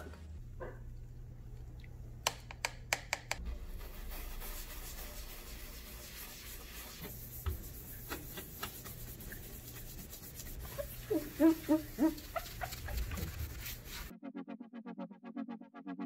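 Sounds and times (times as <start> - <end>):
bristles scrubbing wet panel: 3.7 - 14.1.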